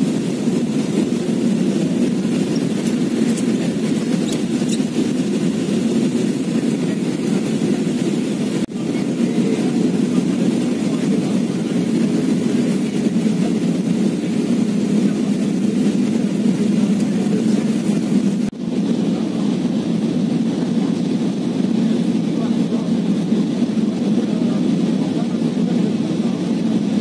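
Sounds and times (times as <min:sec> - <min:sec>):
airliner cabin roar: 0:00.0 - 0:27.0.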